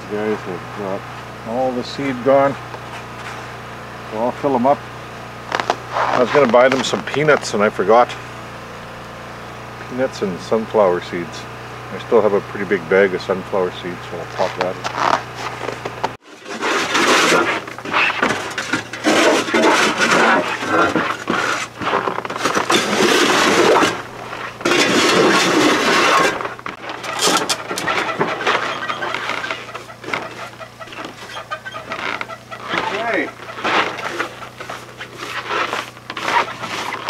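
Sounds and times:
snow scraping on wooden boards: 0:05.4 - 0:08.3, 0:14.1 - 0:37.0.

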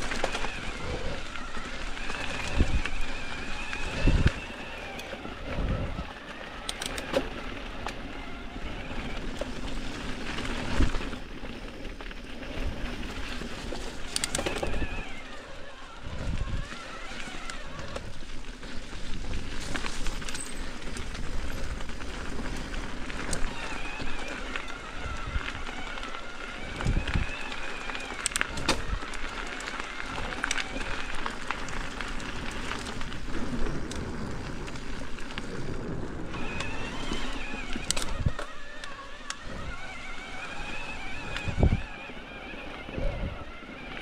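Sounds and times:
tyres on dirt and rock: 0:00.0 - 0:44.0
bike rattling and knocking: 0:16.4 - 0:38.6.

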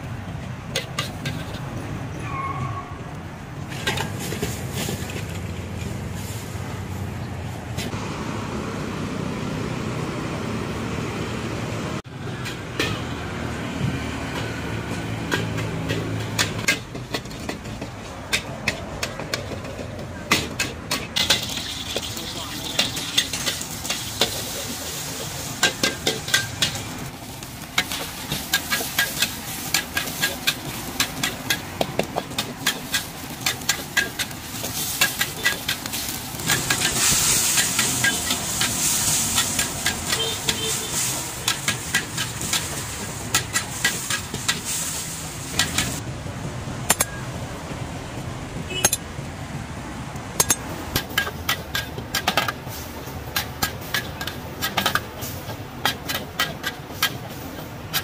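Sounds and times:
metal spatula scraping wok: 0:00.7 - 0:01.7, 0:03.7 - 0:06.5, 0:15.3 - 0:46.0
oil sizzling: 0:20.9 - 0:46.0.

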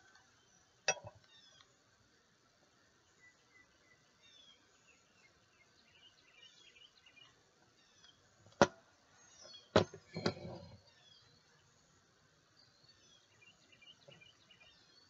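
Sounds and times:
faint bird chirps: 0:00.3 - 0:01.8, 0:03.0 - 0:08.4, 0:12.5 - 0:15.0.

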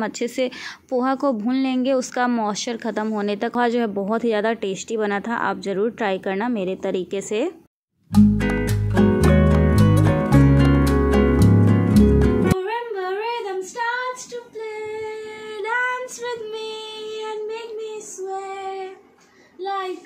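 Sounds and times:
background music with plucked guitar: 0:08.1 - 0:12.6
girl singing unaccompanied: 0:12.6 - 0:20.0.

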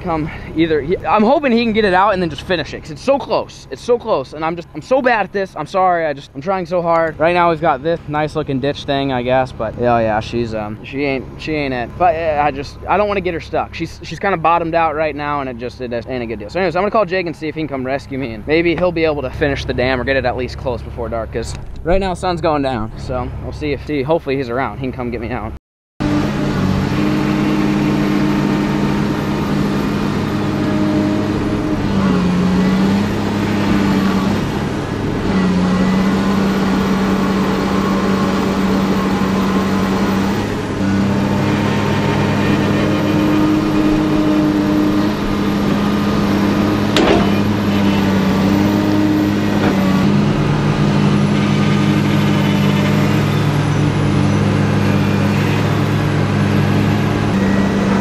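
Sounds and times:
excavator diesel engine running: 0:00.0 - 0:23.8, 0:26.0 - 0:58.0
high hydraulic whine: 0:26.0 - 0:58.0
sharp metal clank: 0:47.0 - 0:47.9.

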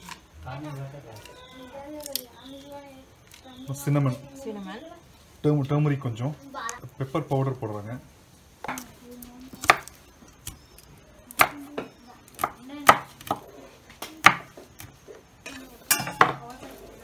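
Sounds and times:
knife chopping on wooden board: 0:14.2 - 0:14.9.

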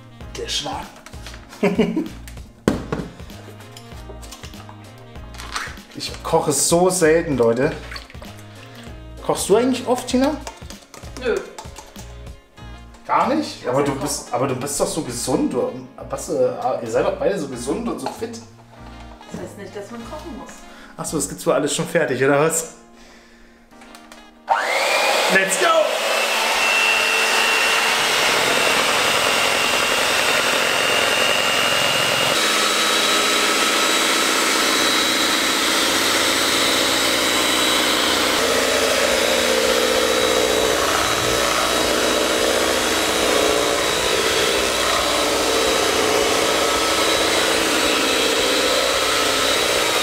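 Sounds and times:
electric hand mixer whipping: 0:24.5 - 0:50.0.

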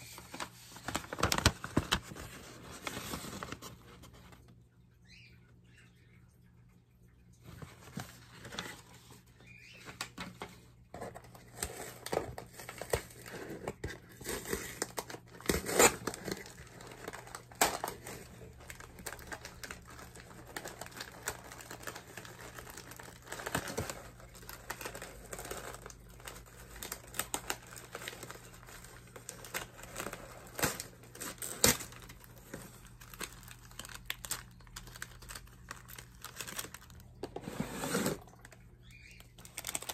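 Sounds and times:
paper and cardboard box rustling: 0:00.0 - 0:04.4.

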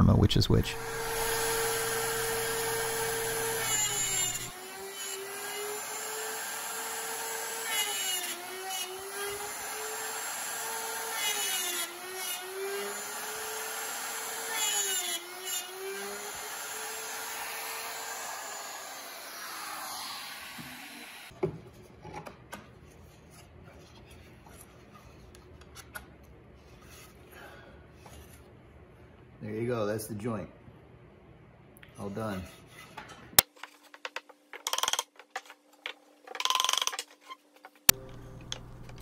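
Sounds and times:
router cutting wood: 0:00.6 - 0:21.3
router motor winding down: 0:00.6 - 0:21.3.

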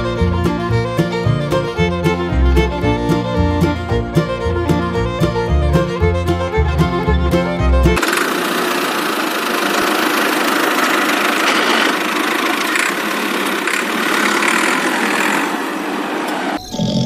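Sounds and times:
tractor engine running: 0:06.1 - 0:16.6.

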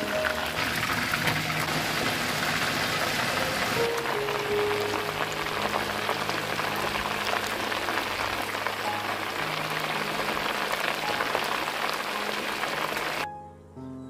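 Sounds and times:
chicken frying in sizzling oil: 0:00.0 - 0:13.3.

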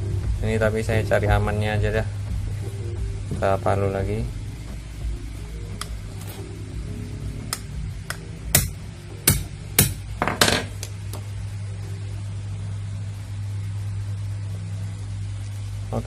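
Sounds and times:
hammer tapping metal pliers: 0:07.5 - 0:10.7.

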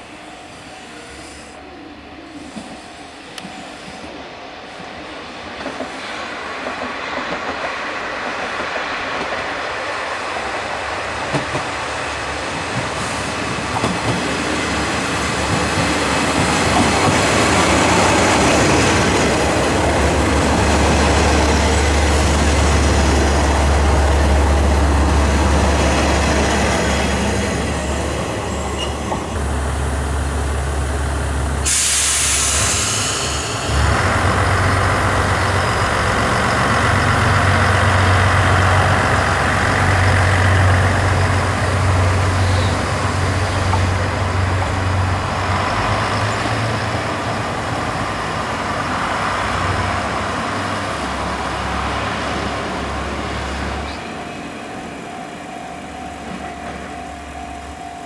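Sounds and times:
train wheels on rails: 0:02.3 - 0:58.0
hiss burst: 0:31.6 - 0:34.2.

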